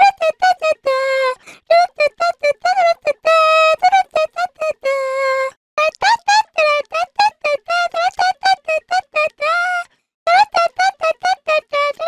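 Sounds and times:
high-pitched girlish voice singing: 0.0 - 12.0.

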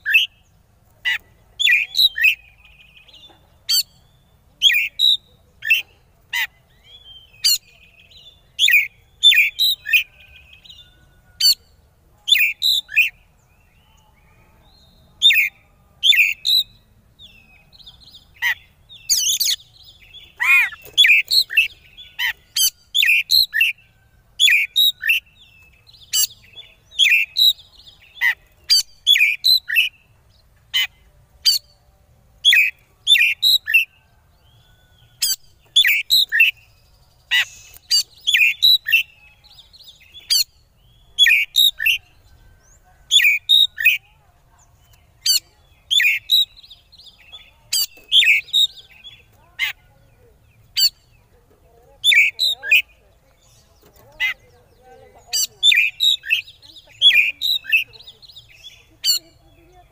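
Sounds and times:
bird chattering calls: 20.2 - 23.8, 37.2 - 39.2, 50.5 - 53.0, 53.6 - 59.9.

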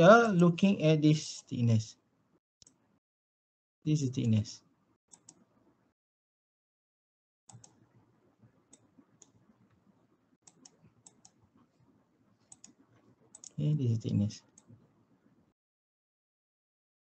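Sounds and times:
faint computer clicks: 7.5 - 7.8, 12.5 - 12.8.

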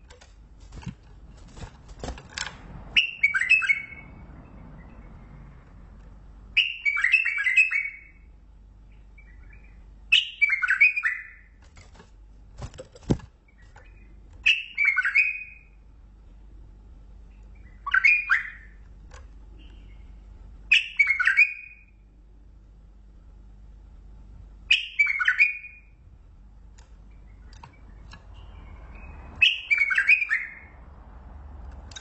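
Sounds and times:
bird warbling song: 3.0 - 5.8, 6.6 - 11.6, 13.4 - 15.8, 17.3 - 18.8, 19.5 - 22.0, 24.7 - 26.0, 27.0 - 30.8.

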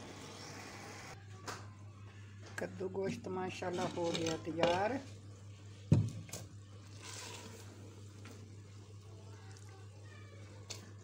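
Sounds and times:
spoon stirring and scraping curry: 6.8 - 8.6.

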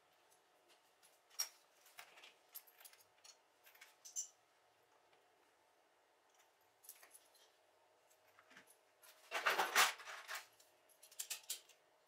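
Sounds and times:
rustling and clattering: 8.2 - 11.4.

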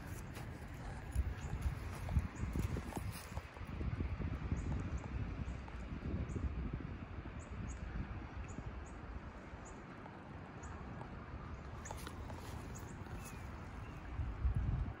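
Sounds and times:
low outdoor rumble: 0.0 - 15.0
small bird chirping: 11.8 - 14.0.

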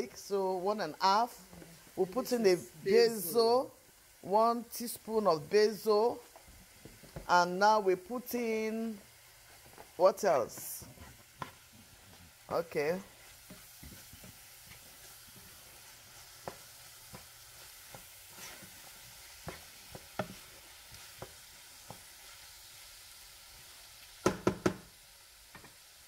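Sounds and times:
vegetables sizzling in a pan: 0.0 - 26.0
spatula scraping and tapping pan: 6.3 - 7.3, 9.4 - 22.4, 25.5 - 25.8.

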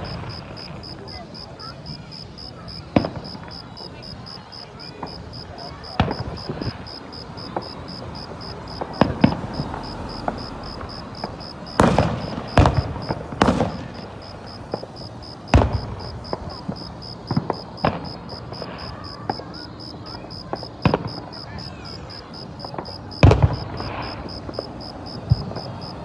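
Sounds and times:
firework shells bursting: 5.0 - 19.4.

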